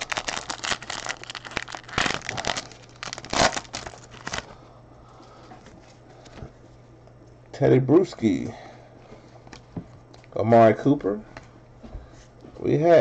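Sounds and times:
wrapper crinkling and tearing: 0:00.0 - 0:04.5.

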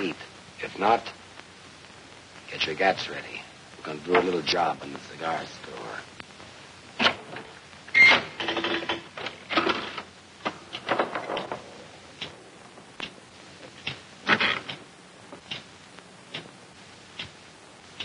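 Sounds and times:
pinball machine clicks and rattles: 0:08.4 - 0:10.0.

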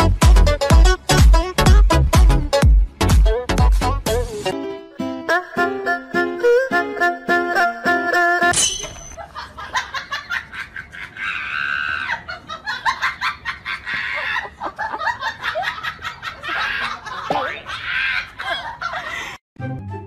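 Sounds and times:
people laughing hard: 0:09.2 - 0:19.4.

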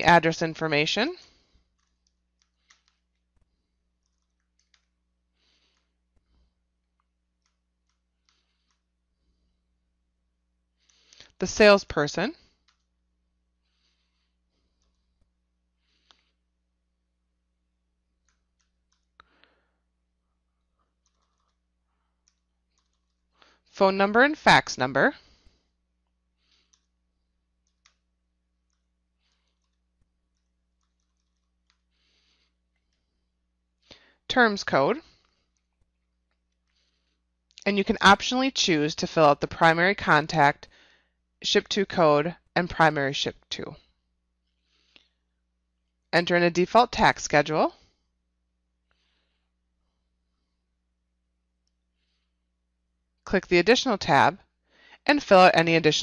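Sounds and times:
computer keyboard keystrokes: 0:01.8 - 0:03.3, 0:04.0 - 0:05.0, 0:18.2 - 0:19.2, 0:21.0 - 0:21.6, 0:22.2 - 0:23.2, 0:28.6 - 0:31.8.

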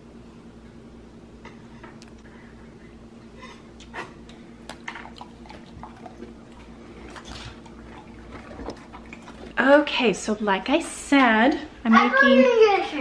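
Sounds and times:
steady low hum: 0:00.0 - 0:13.0
dog crunching and smacking: 0:04.7 - 0:09.6.

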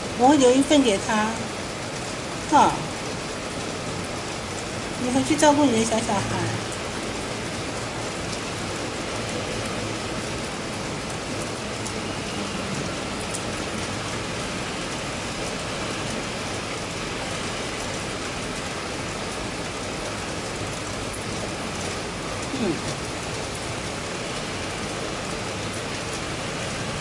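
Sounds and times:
rain on stone pavement: 0:00.0 - 0:27.0.

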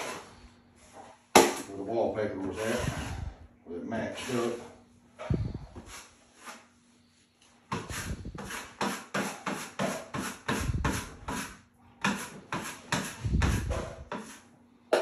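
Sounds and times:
drywall knife scraping compound: 0:00.0 - 0:01.0, 0:02.4 - 0:03.4, 0:05.3 - 0:06.8, 0:07.7 - 0:14.5.

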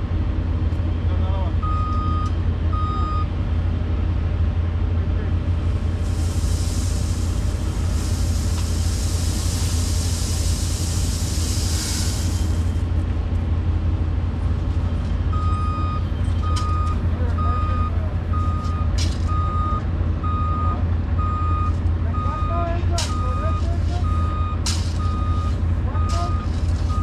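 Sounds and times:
excavator engine running: 0:00.0 - 0:27.0
backup alarm beeping: 0:01.6 - 0:03.3, 0:15.3 - 0:27.0
hiss: 0:06.0 - 0:12.8.

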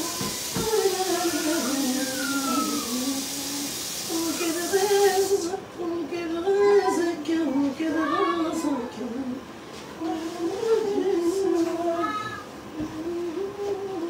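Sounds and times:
steady hiss: 0:00.0 - 0:05.6
woman singing: 0:00.0 - 0:14.0.

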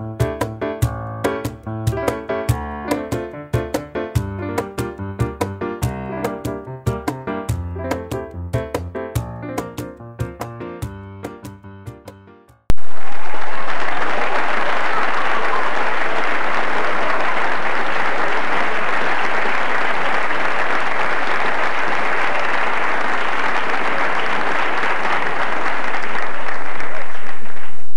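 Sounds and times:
audience applauding: 0:12.7 - 0:27.9.

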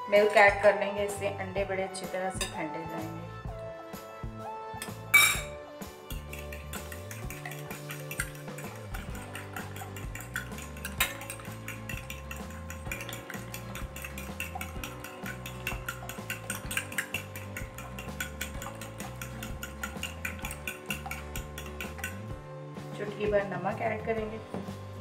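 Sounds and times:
spoon clinking in glass bowl: 0:02.4 - 0:02.6, 0:04.8 - 0:22.2.

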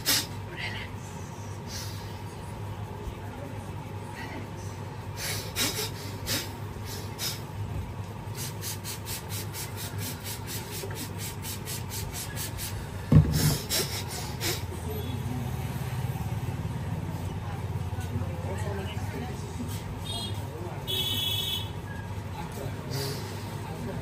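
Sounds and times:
loud thump: 0:13.1 - 0:13.6.

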